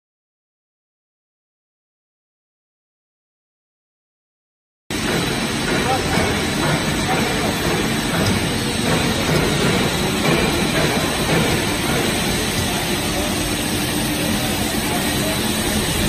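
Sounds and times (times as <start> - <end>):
extrusion machine droning: 4.9 - 16.0.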